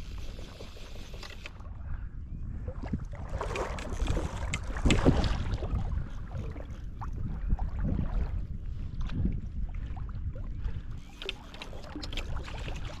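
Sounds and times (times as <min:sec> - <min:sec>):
wind rumble on microphone: 0:00.0 - 0:13.0.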